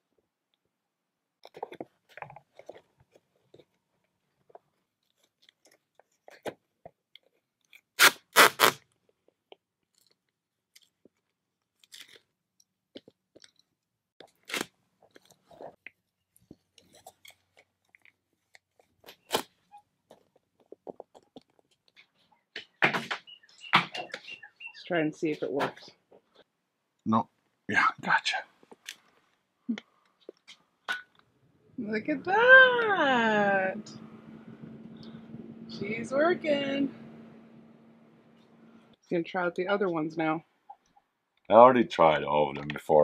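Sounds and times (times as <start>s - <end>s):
tape crackling and rustling: 1.4s - 22.4s
tape ripping off roll: 7.8s - 8.9s, 14.3s - 14.8s, 19.0s - 19.6s.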